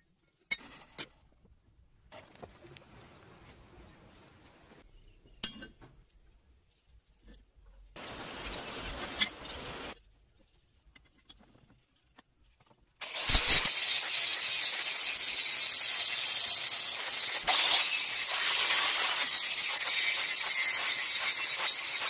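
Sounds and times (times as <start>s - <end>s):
angle grinder grinding steel: 13.0s - 22.0s.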